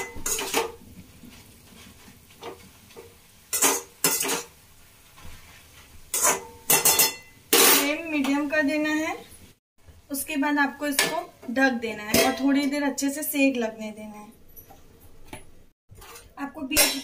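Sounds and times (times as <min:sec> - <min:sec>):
greens sauteing: 0:00.0 - 0:14.2
metal spatula scraping a pan: 0:03.5 - 0:04.5, 0:06.1 - 0:08.0, 0:15.9 - 0:17.0.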